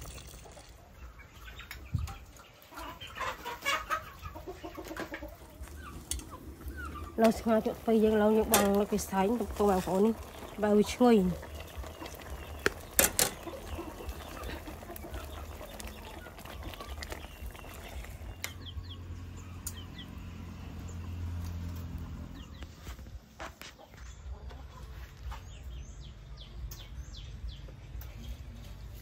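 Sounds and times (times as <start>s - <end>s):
chickens and birds calling: 0.0s - 29.0s.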